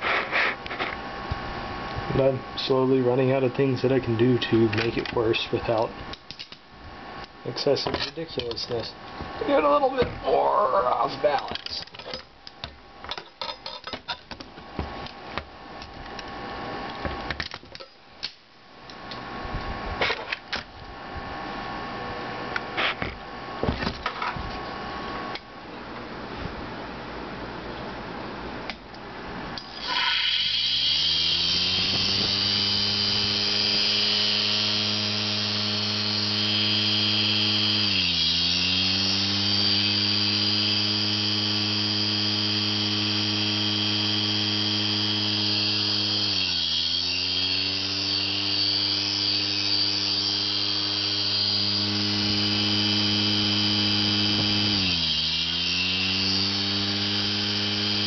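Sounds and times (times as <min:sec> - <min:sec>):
buzzing hum: 0:29.5 - 0:58.0
hard drive motor high whine: 0:29.6 - 0:58.0.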